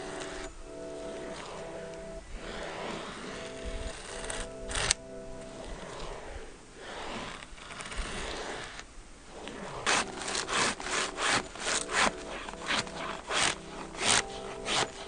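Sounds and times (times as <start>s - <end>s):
knife scraping wood: 9.8s - 15.0s.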